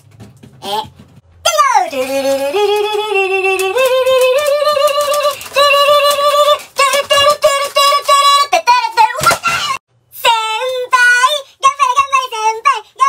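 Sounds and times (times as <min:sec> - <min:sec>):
high artificial singing voice: 0:01.5 - 0:13.0.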